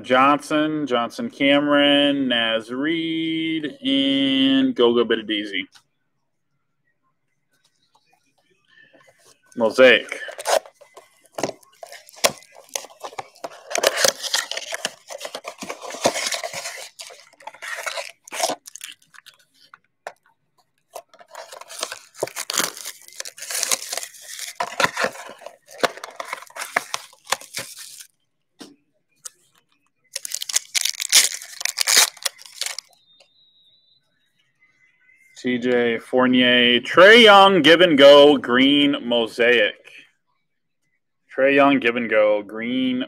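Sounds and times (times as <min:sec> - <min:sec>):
plastic and foil wrappers tearing: 0:10.1 - 0:19.8, 0:21.0 - 0:28.1, 0:30.1 - 0:32.9.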